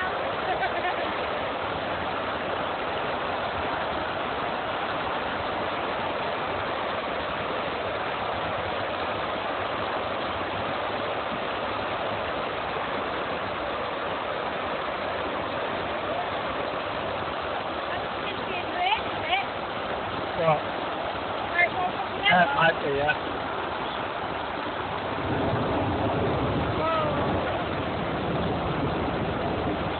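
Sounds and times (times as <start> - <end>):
floodwater rushing down steps: 0.0 - 29.9
heavy rain: 0.0 - 29.9.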